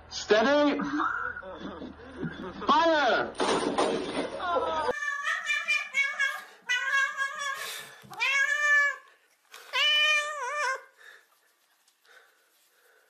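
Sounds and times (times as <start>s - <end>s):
cat meowing: 4.9s - 10.9s.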